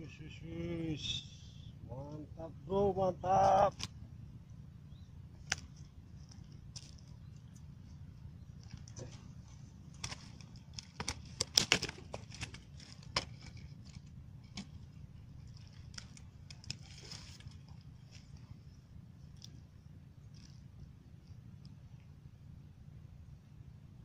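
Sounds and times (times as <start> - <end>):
rustling among dry branches: 4.9 - 22.1
crackling and clicking: 9.9 - 18.5.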